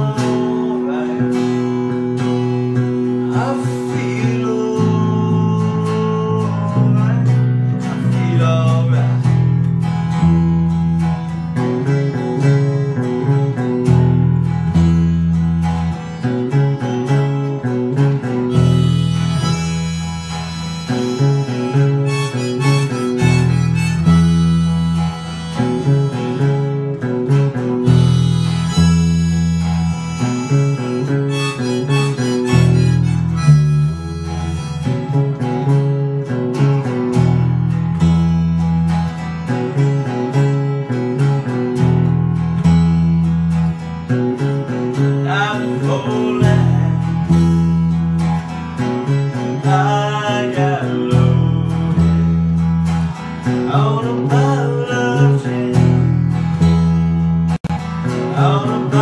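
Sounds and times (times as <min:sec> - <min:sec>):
acoustic guitar: 0:00.0 - 0:59.0
electric bass guitar: 0:00.0 - 0:59.0
pitch-bending lead melody: 0:18.2 - 0:36.7.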